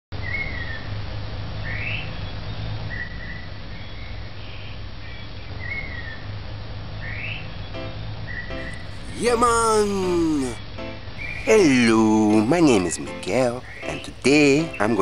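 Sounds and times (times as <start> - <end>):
birds whistling calls: 11.2 - 12.0, 13.4 - 15.0.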